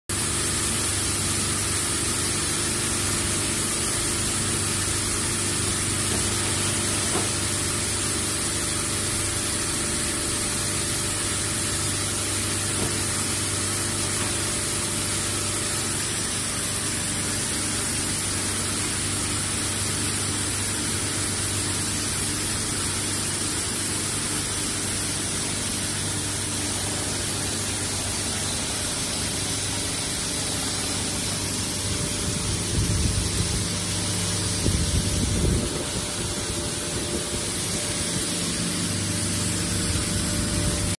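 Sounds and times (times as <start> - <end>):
machinery hiss: 20.8 - 40.9
low motor hum: 26.4 - 40.9.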